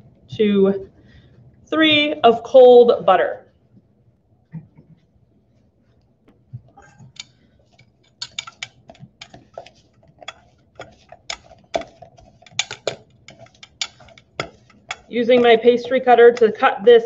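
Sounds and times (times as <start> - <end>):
metal blades clinking on steel bowl: 7.1 - 16.7.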